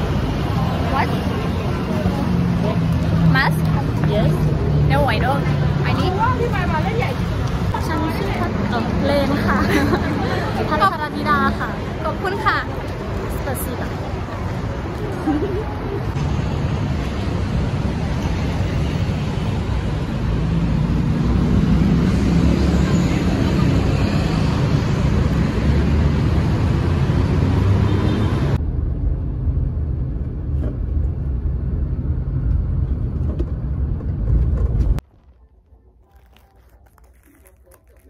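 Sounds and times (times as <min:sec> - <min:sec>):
cars passing on street: 0:00.0 - 0:36.3
low rumble inside moving car: 0:28.6 - 0:35.7.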